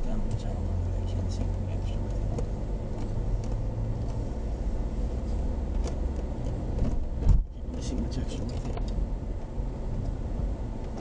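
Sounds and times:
car engine and road noise: 0.0s - 11.0s
heavy thump: 6.7s - 7.5s.

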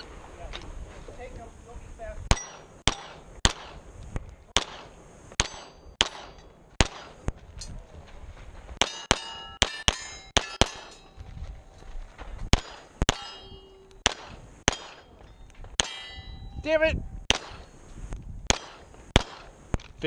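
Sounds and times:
pistol shots: 2.3s - 3.8s, 4.6s - 7.2s, 8.8s - 11.0s, 12.5s - 13.4s, 14.0s - 15.2s, 15.8s - 16.3s, 17.3s - 17.7s, 18.5s - 19.6s
steel targets ringing: 5.4s - 6.6s, 8.8s - 11.2s, 12.6s - 16.8s.

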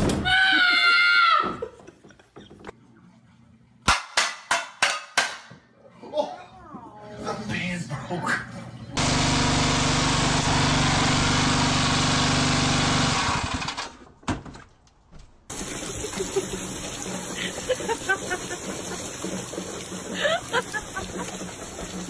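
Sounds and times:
pressure washer spraying: 9.0s - 13.5s, 15.5s - 22.0s.

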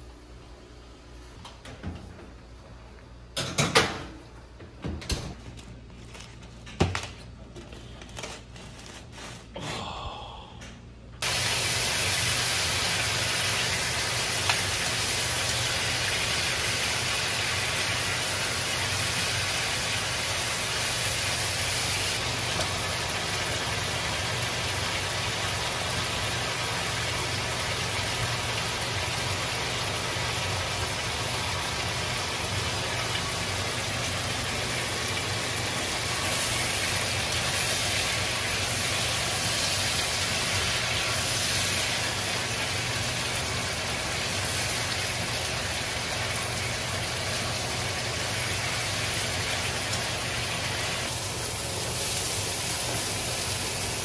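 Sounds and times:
baking tray knocking and clattering: 3.4s - 4.1s
chicken sizzling in a wok: 11.2s - 54.0s.

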